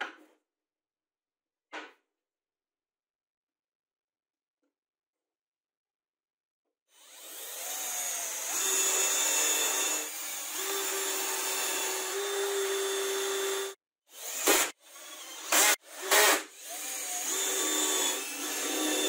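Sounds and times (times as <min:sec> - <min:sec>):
cordless drill boring into chipboard: 0:06.9 - 0:19.0.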